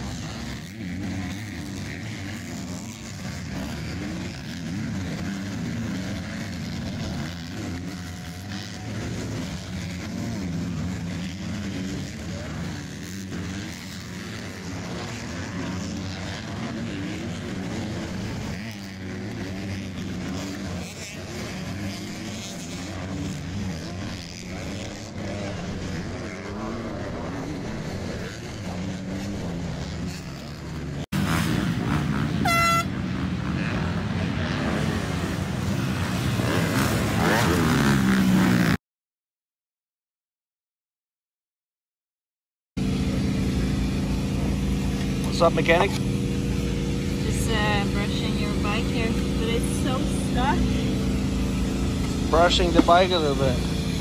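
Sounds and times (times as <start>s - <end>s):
motocross bike engines revving: 0.0s - 38.8s, 42.8s - 54.0s
short horn toot: 32.4s - 33.0s.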